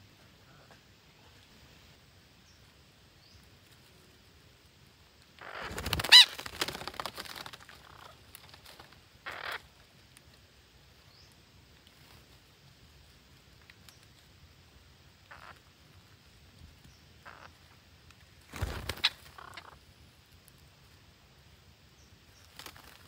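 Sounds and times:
birds rustling through leaves: 0:01.0 - 0:23.0
parakeet call: 0:05.4 - 0:06.5, 0:09.2 - 0:09.7, 0:15.3 - 0:15.6, 0:17.2 - 0:17.7, 0:18.9 - 0:19.8.

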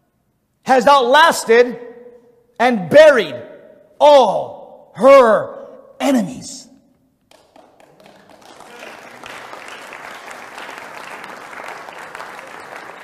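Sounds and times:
audience applause: 0:07.3 - 0:13.0.

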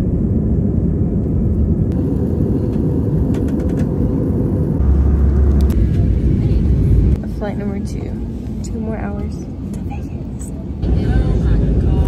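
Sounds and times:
jet engine cabin rumble: 0:00.0 - 0:12.0.

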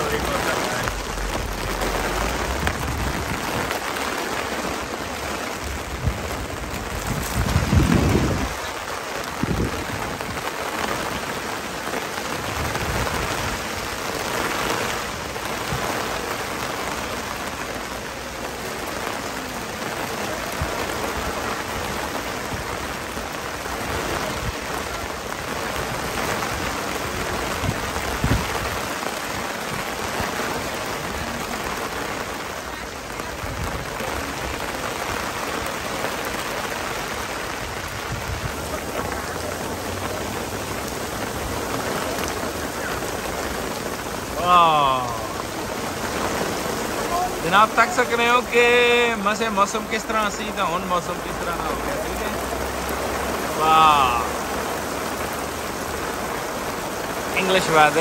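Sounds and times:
rain on paving and canopy: 0:00.0 - 0:58.0.

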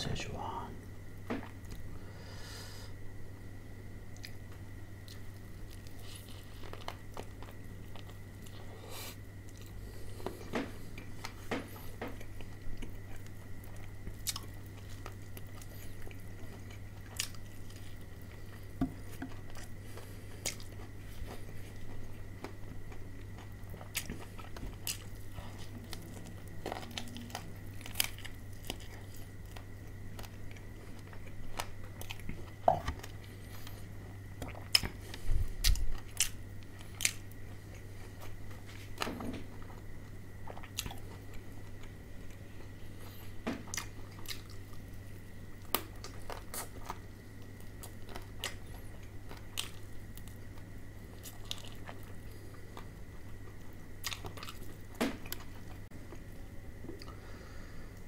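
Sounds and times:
faint high whine: 0:00.0 - 0:58.0
low electrical hum: 0:00.0 - 0:58.0
person crunching fried chicken: 0:12.2 - 0:18.6, 0:19.3 - 0:33.6, 0:45.6 - 0:55.8.

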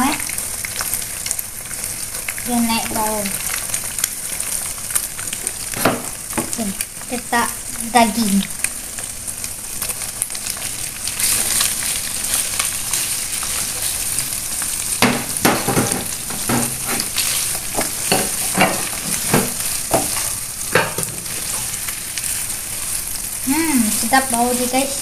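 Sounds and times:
meat sizzling in hot oil: 0:00.0 - 0:25.0
spatula scraping a pan: 0:15.2 - 0:23.1.

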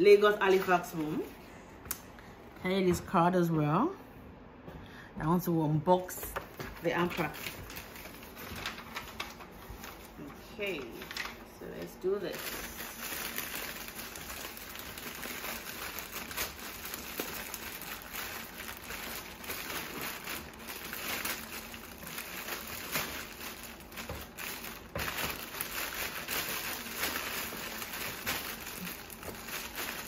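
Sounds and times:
cellophane crinkling: 0:06.4 - 0:30.0.

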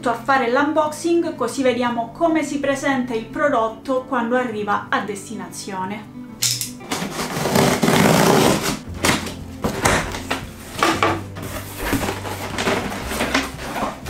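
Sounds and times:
box cutter slicing packing tape: 0:06.4 - 0:10.0
cardboard flaps opening: 0:06.8 - 0:14.0
tape crackling and pulling away: 0:06.8 - 0:14.0.

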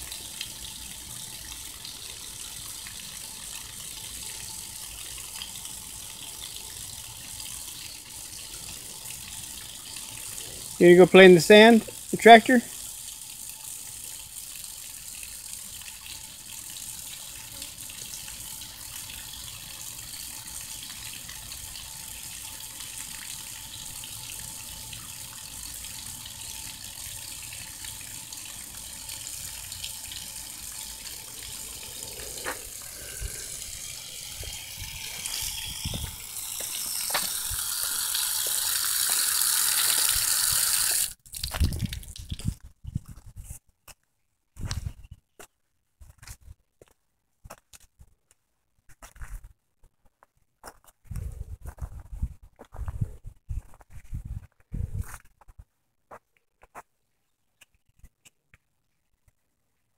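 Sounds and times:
water gushing into a puddle: 0:00.0 - 0:42.6.

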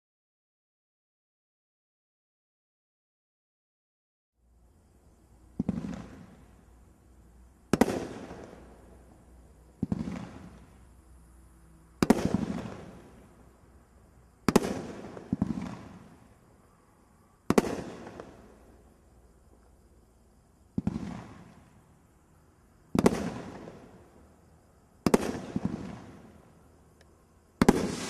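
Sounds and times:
firework shots banging: 0:07.7 - 0:08.7, 0:27.6 - 0:28.0.

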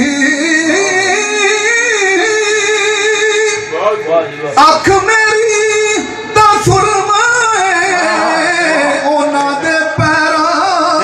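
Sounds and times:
man singing devotional song: 0:00.0 - 0:03.7, 0:04.6 - 0:11.0.

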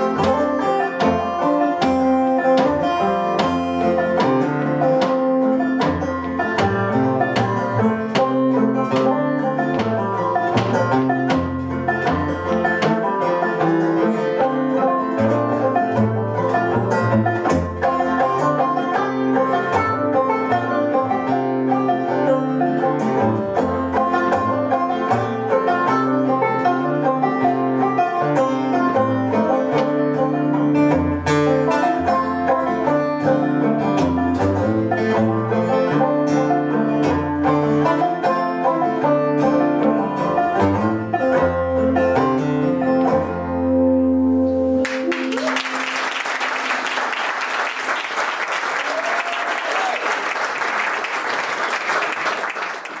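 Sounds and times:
banjo and acoustic guitar tune: 0:00.0 - 0:49.0
audience applauding: 0:44.8 - 0:53.0.

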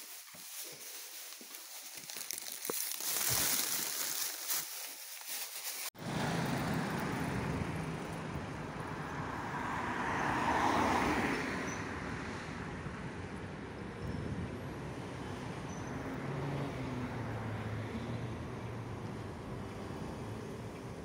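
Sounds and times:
rustling: 0:00.0 - 0:05.9
road traffic rumble: 0:00.0 - 0:21.0
car approaching: 0:06.0 - 0:21.0.

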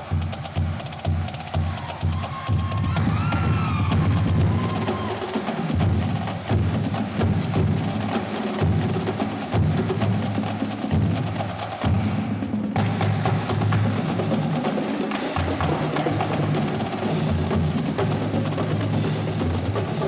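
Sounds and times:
lower drum part: 0:00.0 - 0:20.0
rapid snare drum strokes: 0:00.0 - 0:20.0.

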